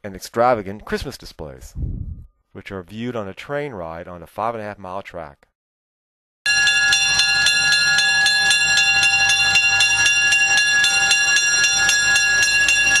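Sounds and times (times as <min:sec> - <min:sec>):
railroad bell ringing rapidly: 0:06.5 - 0:13.0
low train rumble: 0:06.8 - 0:13.0.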